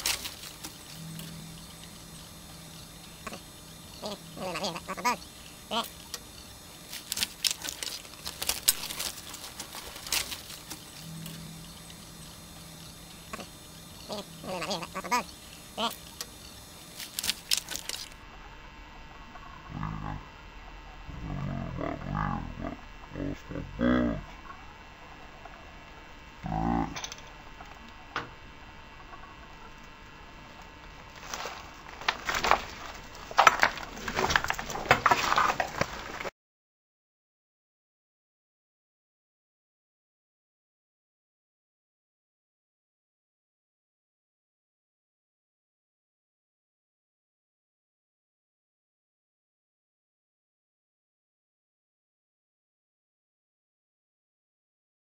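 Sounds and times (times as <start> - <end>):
tape dropout clicks and crackles: 0.0 - 18.2, 29.8 - 36.3
faint low hum: 0.0 - 36.3
handling clicks and rustles: 6.9 - 12.0.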